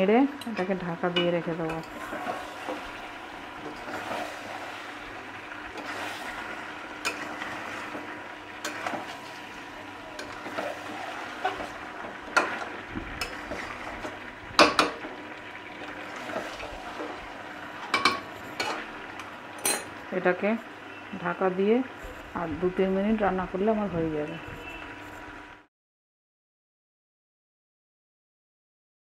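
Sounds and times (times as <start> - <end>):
meat sizzling in oil: 0.1 - 25.7
spatula scraping pan: 1.2 - 15.2, 15.9 - 19.9.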